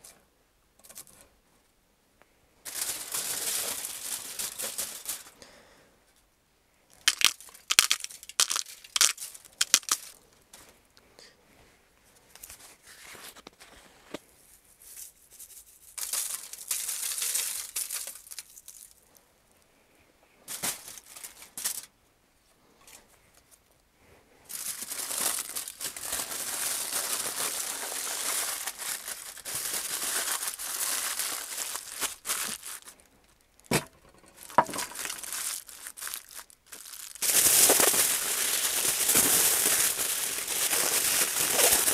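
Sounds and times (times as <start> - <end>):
aluminium foil crinkling: 2.7 - 5.4, 7.0 - 10.2, 14.8 - 19.0, 20.5 - 21.9, 24.5 - 41.9.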